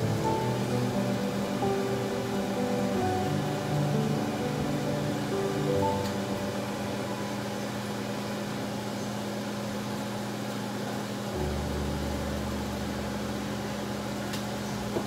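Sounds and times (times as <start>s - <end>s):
machine-like hum: 0.0s - 15.0s
deeper hum: 11.4s - 15.0s.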